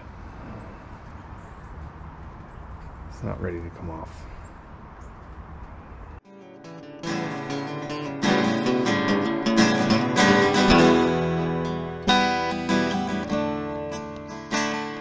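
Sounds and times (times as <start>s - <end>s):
acoustic guitar strumming: 6.3s - 15.0s.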